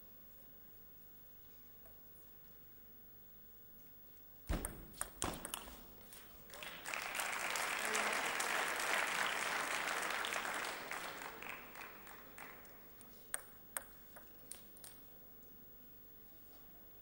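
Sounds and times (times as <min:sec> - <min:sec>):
table tennis ball bouncing: 0:04.5 - 0:06.0
spectators applauding: 0:06.5 - 0:12.9.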